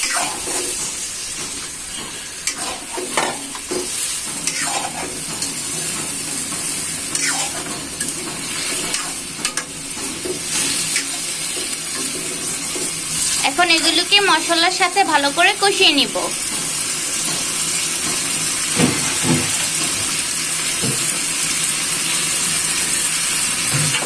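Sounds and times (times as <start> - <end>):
metal ladle scraping a pan: 0.0 - 0.9, 2.4 - 5.6, 7.1 - 9.7
vegetables sizzling in hot oil: 0.0 - 24.0.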